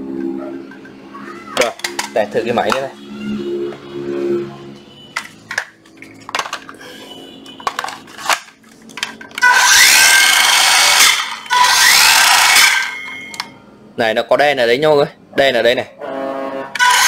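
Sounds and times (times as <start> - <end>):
handling clicks and knocks: 1.6 - 2.9, 5.1 - 6.8, 7.4 - 9.4
circular saw motor whine: 9.4 - 13.4, 16.8 - 17.0.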